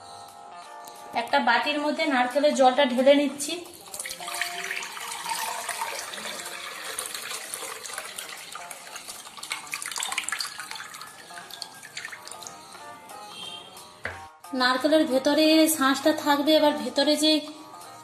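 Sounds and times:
coconut water pouring into a bowl: 3.8 - 12.6.

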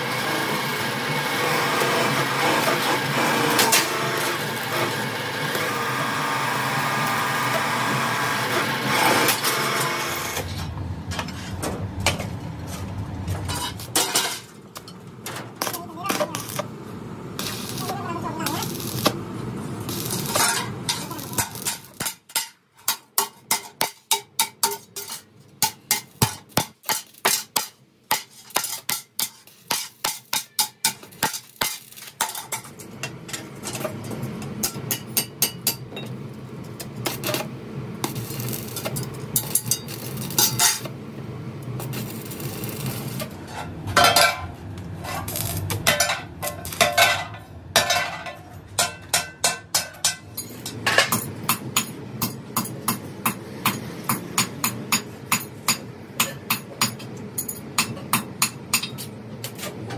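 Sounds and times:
welding arc crackling hiss: 15.6 - 22.2, 31.1 - 32.3, 37.0 - 40.9, 41.6 - 43.4, 45.3 - 45.8.

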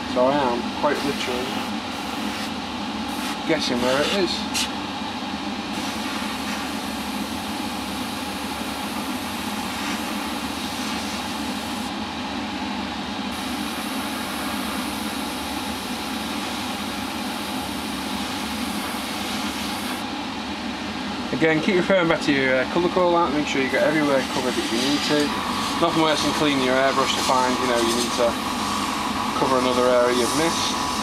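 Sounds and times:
low mechanical hum: 0.0 - 31.0
airbrush hissing: 1.0 - 2.5, 3.1 - 4.7, 5.7 - 11.9, 13.4 - 20.0, 24.1 - 31.0.

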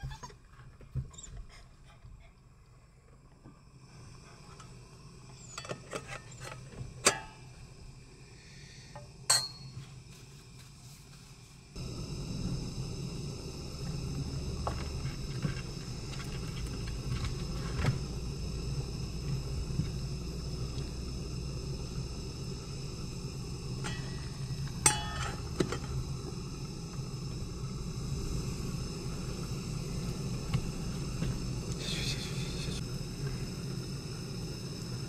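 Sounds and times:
gas stove burning: 2.2 - 35.0
metallic pot lid clink: 9.3 - 9.8, 23.8 - 25.8.

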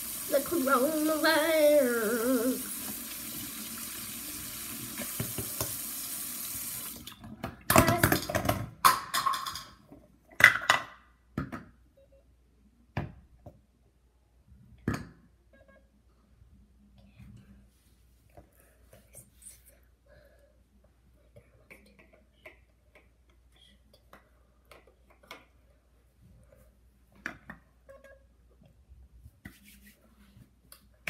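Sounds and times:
water running from sink tap: 0.0 - 7.2.

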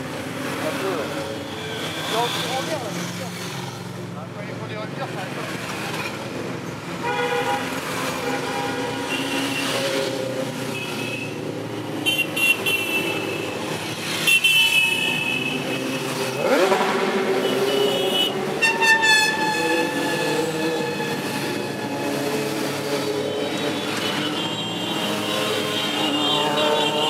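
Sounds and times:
motorcycle horns tooting: 7.0 - 27.0
motorcycle engine revving: 14.9 - 27.0
motorcycles riding past: 15.2 - 18.6.

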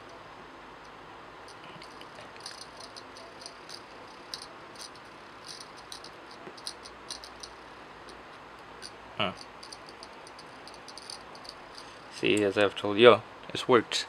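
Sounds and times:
steady hiss: 0.0 - 14.0
high insect chirps: 9.2 - 12.1.

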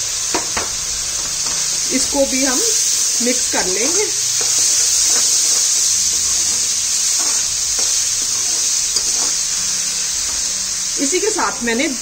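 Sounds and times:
onions frying in oil: 0.0 - 12.0
metal spoon scraping pan: 3.3 - 10.6.

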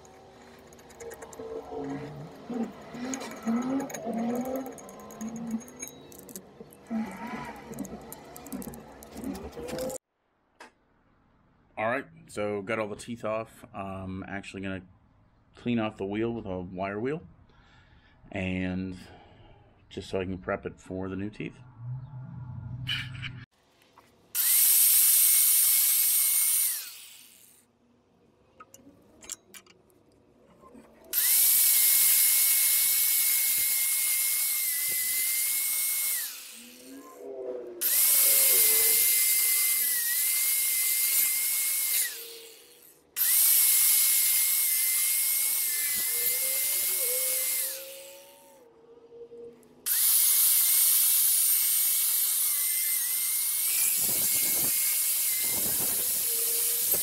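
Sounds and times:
angle grinder wire wheel on steel: 0.0 - 10.0, 30.6 - 48.7, 49.9 - 57.0.

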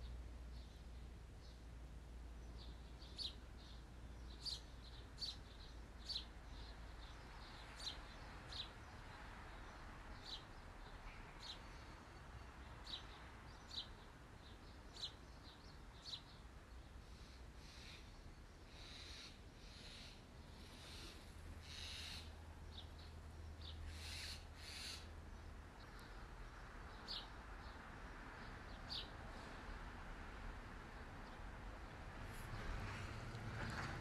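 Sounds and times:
bird chirping: 2.4 - 26.2.

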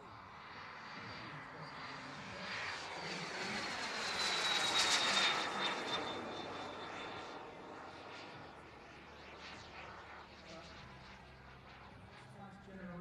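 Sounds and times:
turbine jet whistle and exhaust rush: 0.9 - 8.6.

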